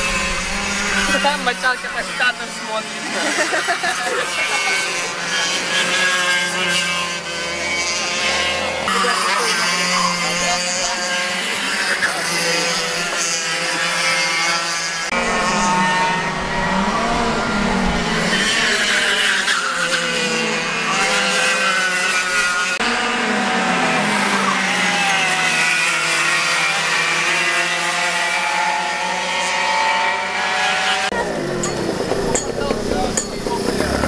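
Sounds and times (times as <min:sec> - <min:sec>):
racing kart engines: 0:00.0 - 0:34.0.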